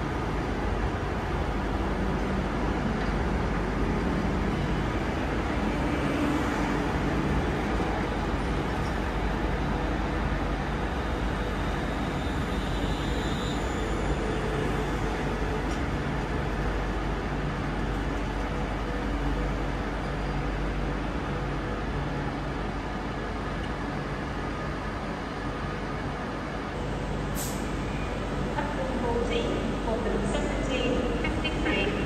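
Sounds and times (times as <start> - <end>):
train wheels running on rails: 0.0 - 32.0.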